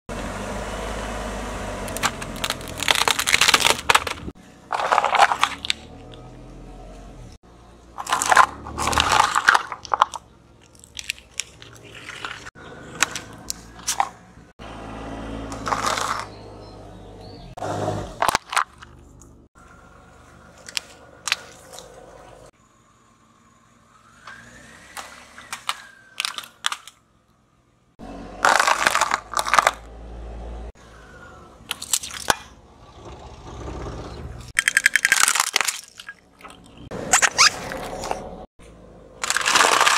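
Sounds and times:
plastic keyboard cracking and snapping: 1.9 - 4.3
cups crunching under tyre: 1.9 - 6.4, 8.0 - 14.5, 15.5 - 16.4, 18.0 - 19.8, 20.4 - 22.5, 25.0 - 27.1, 28.4 - 29.9, 31.6 - 38.5, 39.2 - 39.9.

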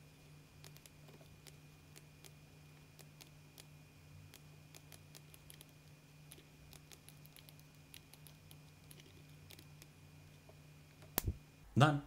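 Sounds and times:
steady low hum: 0.0 - 12.0
computer mouse clicks: 0.6 - 2.4, 4.3 - 9.9.

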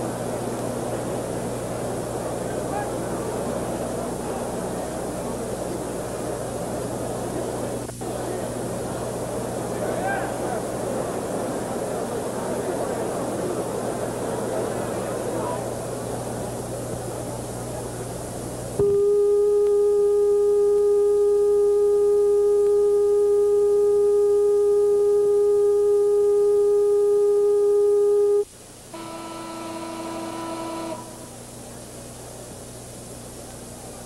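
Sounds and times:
loud steady electronic tone: 0.0 - 33.8
lower tone with overtones: 18.7 - 32.2.

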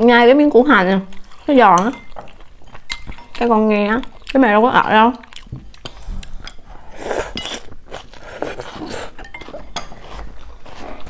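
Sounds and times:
noodles slurped and chewed: 0.8 - 11.0
chopsticks clinking against bowls: 1.2 - 3.6, 7.3 - 10.2.

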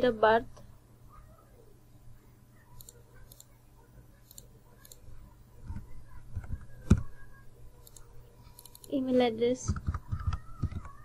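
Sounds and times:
computer mouse clicking: 2.7 - 3.6, 4.2 - 7.1, 7.8 - 9.0, 9.7 - 11.0.

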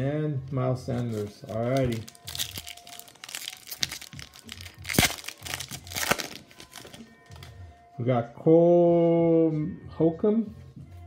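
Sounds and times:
foil wrapper crinkling and tearing: 1.0 - 7.5.

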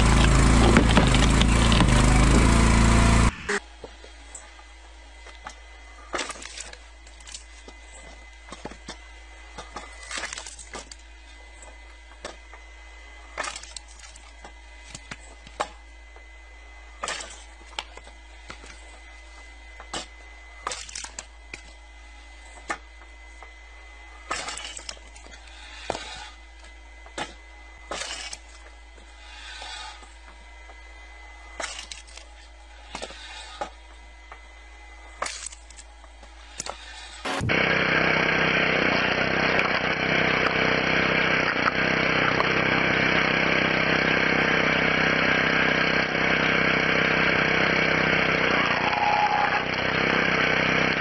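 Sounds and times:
wood cracking in log splitter: 0.0 - 3.6, 9.7 - 11.0, 13.4 - 15.8, 20.7 - 21.7, 24.3 - 26.2, 27.1 - 28.7, 31.6 - 32.3, 35.2 - 35.9, 36.6 - 51.0.

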